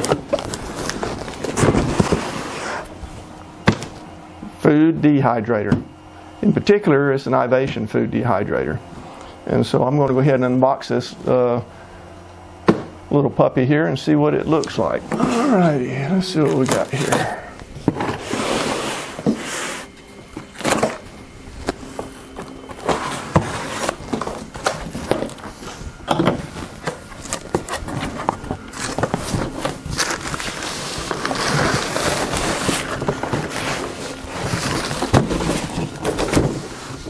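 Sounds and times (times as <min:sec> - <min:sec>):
cardboard scraping and sliding: 0:00.0 - 0:04.0, 0:16.4 - 0:37.0.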